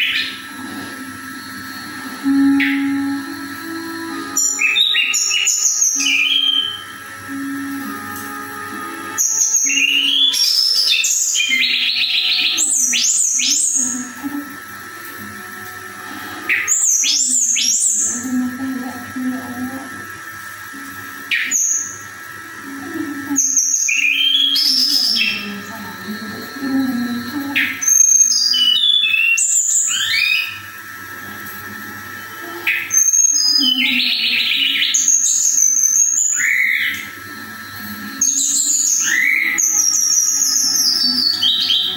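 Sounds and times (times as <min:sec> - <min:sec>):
songbird singing: 0:00.0 - 0:30.8, 0:32.4 - 0:41.9
bird whistling and trilling: 0:04.3 - 0:07.0, 0:09.2 - 0:14.0, 0:16.5 - 0:18.2, 0:23.4 - 0:25.6, 0:26.7 - 0:30.8, 0:32.7 - 0:41.9.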